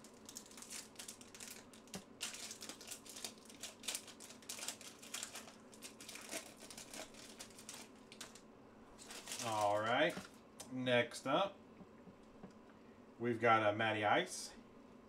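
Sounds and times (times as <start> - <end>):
foil wrapper crinkling: 0.0 - 8.4, 9.0 - 10.4.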